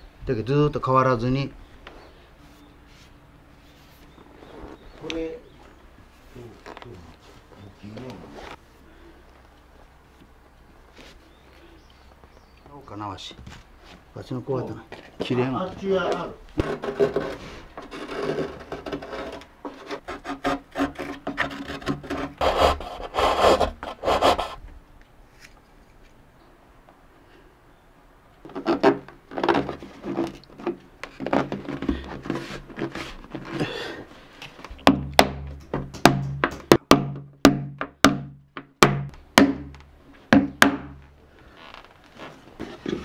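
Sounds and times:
rubbing on wood: 16.6 - 24.6, 28.5 - 33.7.

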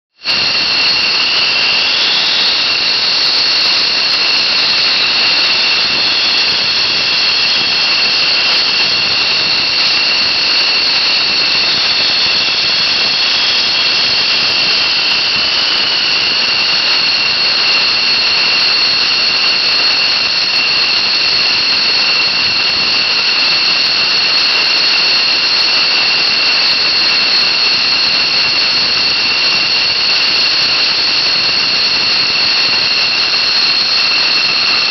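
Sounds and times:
jet engine running: 0.2 - 34.9.

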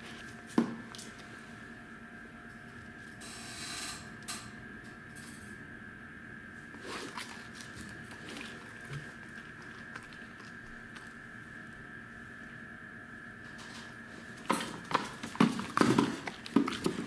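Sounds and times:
steady high hum: 0.0 - 17.0
dog chewing food: 6.7 - 11.9, 14.2 - 17.0.

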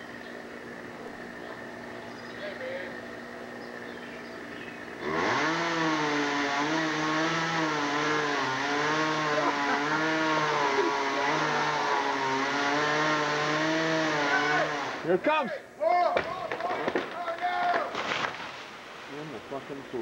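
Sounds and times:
chainsaw cutting tree trunk: 2.9 - 15.2.

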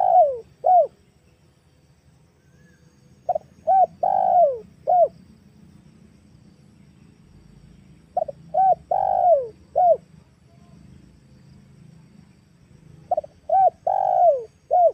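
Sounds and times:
dove cooing: 0.0 - 1.0, 3.3 - 5.2, 8.2 - 10.1, 13.0 - 14.9
faint low hum: 0.0 - 14.9.

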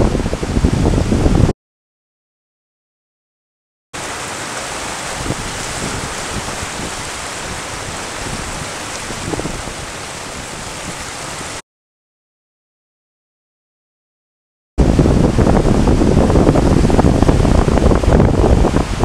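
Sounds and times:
surf breaking over rocks: 4.0 - 11.6, 14.8 - 19.0.

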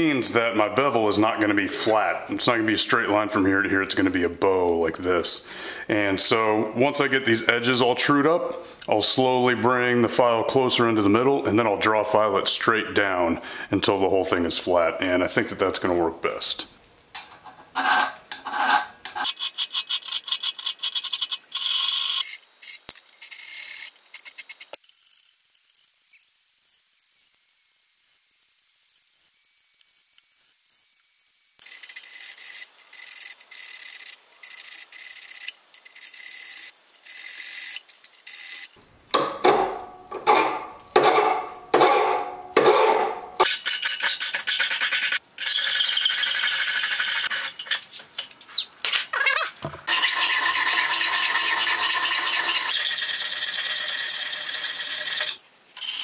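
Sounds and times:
file rasping on steel blade: 17.8 - 21.4, 49.9 - 55.4.

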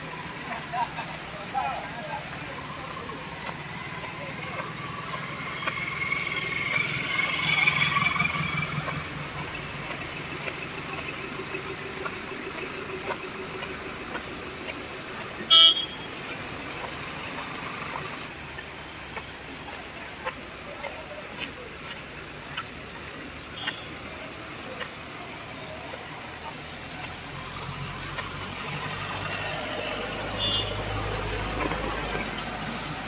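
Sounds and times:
heavy rain on paving: 0.0 - 33.0
vehicle engine running: 0.0 - 33.0
car horn beep: 15.5 - 16.1, 30.4 - 30.8.

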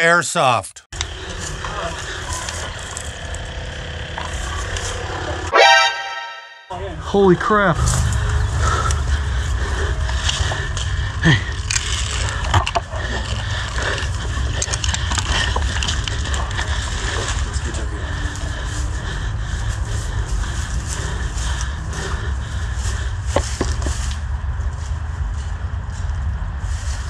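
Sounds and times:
steady low rumble: 1.0 - 5.6, 6.6 - 27.0
faint voices: 1.1 - 5.5.

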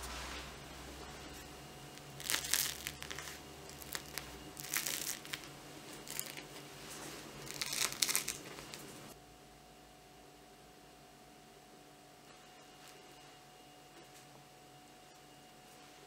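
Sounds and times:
bread crust crackling: 1.2 - 9.2.

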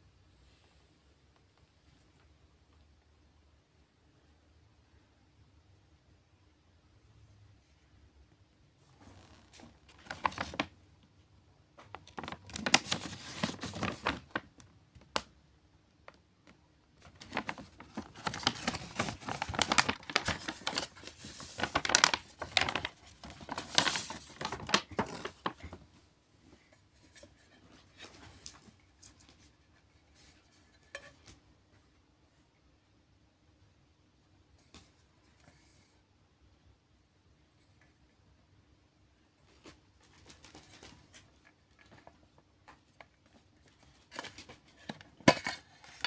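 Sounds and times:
paper bag rustling: 9.0 - 10.7, 12.0 - 14.6, 17.0 - 25.9
cardboard box handling: 17.2 - 25.8.

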